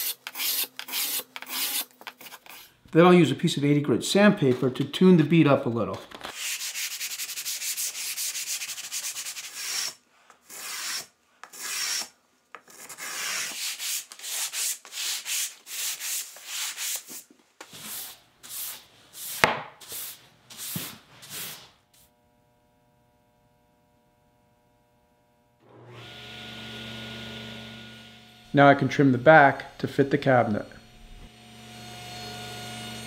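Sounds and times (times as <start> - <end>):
sandpaper rubbing on wood: 0.0 - 2.7, 6.3 - 12.1, 12.7 - 21.8.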